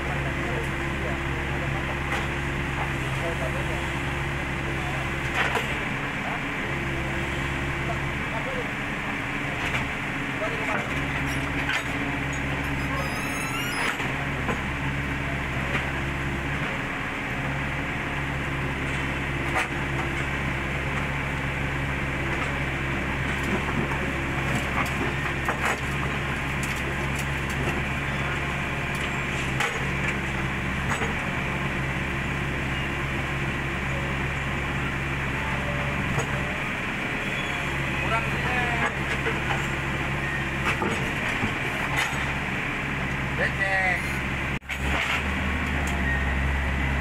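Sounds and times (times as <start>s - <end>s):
excavator diesel engine running: 0.0s - 47.0s.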